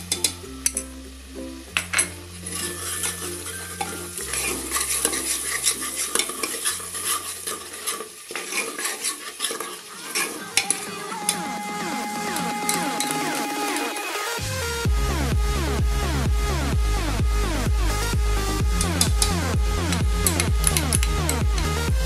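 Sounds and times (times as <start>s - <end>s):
masala sizzling: 0.0s - 22.0s
ladle scraping metal pot: 1.8s - 11.5s.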